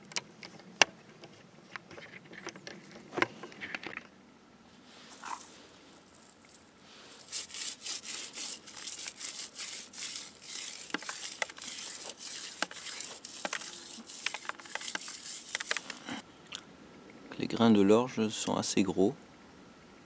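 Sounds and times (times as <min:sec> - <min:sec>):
barley husks rustling: 0:04.8 - 0:16.2
grains ticking into plastic bucket: 0:08.2 - 0:16.0.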